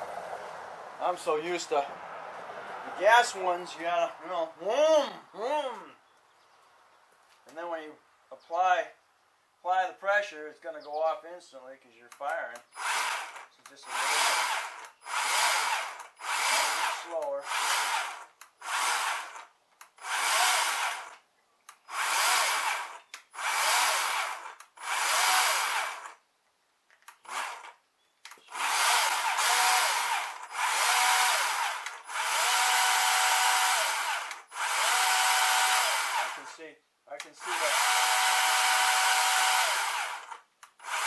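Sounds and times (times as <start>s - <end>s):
electric chainsaw whining: 12.6s - 21.2s, 21.9s - 26.2s, 27.1s - 36.6s, 37.2s - 41.0s.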